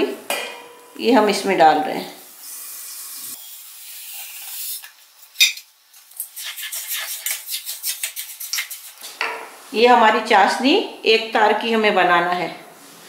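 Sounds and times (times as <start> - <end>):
spoon scraping steel pot: 6.2 - 9.1.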